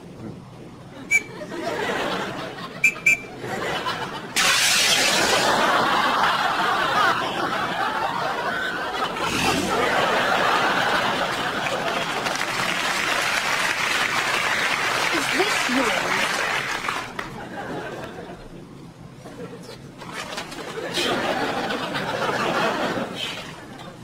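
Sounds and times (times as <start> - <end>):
audience laughter: 0.9 - 24.0
short high beeps: 1.1 - 1.4, 2.8 - 3.3.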